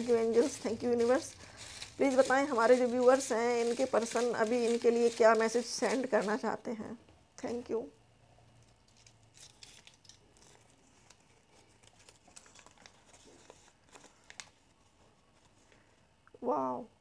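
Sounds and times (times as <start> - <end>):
paper scroll rustling and crinkling: 0.0 - 6.6, 8.9 - 15.9.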